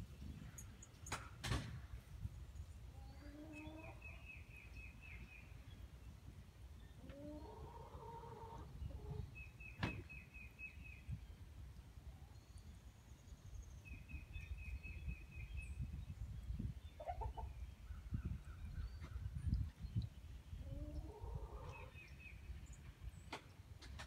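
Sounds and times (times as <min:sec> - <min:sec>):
gusty wind rumble on microphone: 0:13.8 - 0:23.2.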